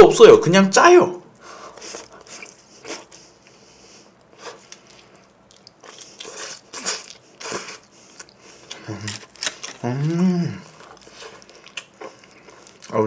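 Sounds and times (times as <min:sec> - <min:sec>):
biting and chewing pizza: 0:04.2 - 0:13.0.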